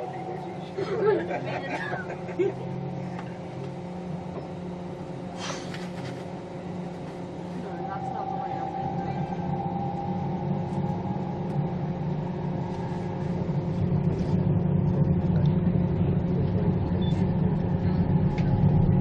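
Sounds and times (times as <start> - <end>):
train rumble inside carriage: 0.0 - 19.0.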